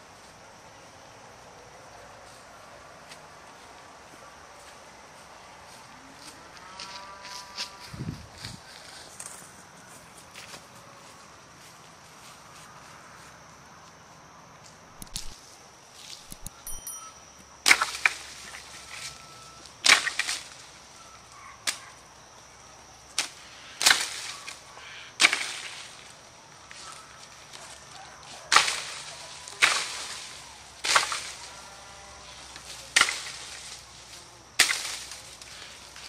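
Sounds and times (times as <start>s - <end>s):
pole whacking tree branches: 17.6s - 19.2s, 19.8s - 20.8s, 23.1s - 24.6s, 25.2s - 27.5s, 28.5s - 31.6s, 32.5s - 36.0s
rustle of shaken leaves: 23.3s - 36.0s.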